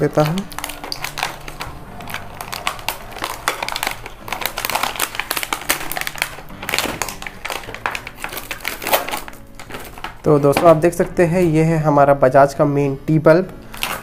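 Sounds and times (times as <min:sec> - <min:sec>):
packaging being torn open: 0:00.0 - 0:10.8, 0:13.6 - 0:14.0
plastic film crinkling: 0:00.0 - 0:11.8, 0:13.5 - 0:14.0.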